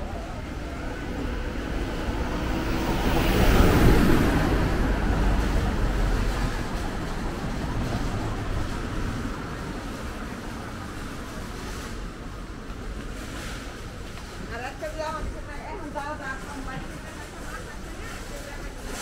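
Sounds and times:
city street traffic: 0:00.0 - 0:19.0.

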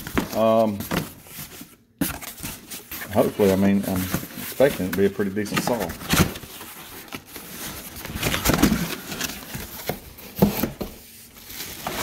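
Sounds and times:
cardboard flaps scraping and rustling: 0:00.0 - 0:12.0
box handling thumps: 0:08.1 - 0:11.0.

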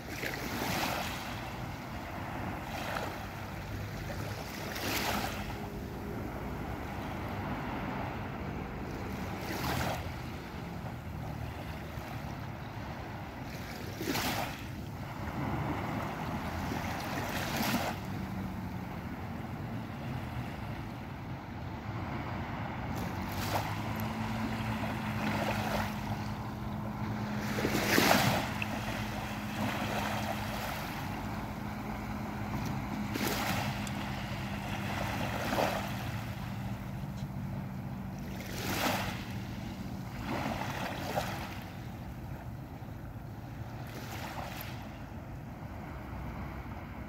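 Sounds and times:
waves washing over pebbly beach: 0:00.0 - 0:20.8, 0:21.6 - 0:42.0, 0:43.8 - 0:45.0
steady low hum: 0:14.7 - 0:43.8.

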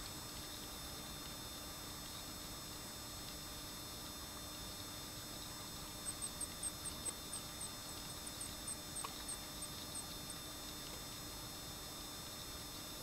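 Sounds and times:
small bird chirping: 0:06.0 - 0:10.1.

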